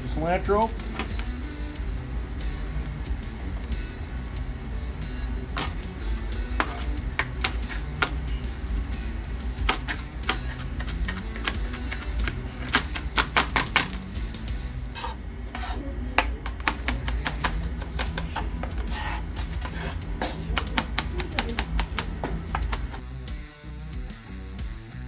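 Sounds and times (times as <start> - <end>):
background music: 0.0 - 25.0
knife chopping on cutting board: 6.6 - 8.3, 9.6 - 14.1, 15.0 - 23.0.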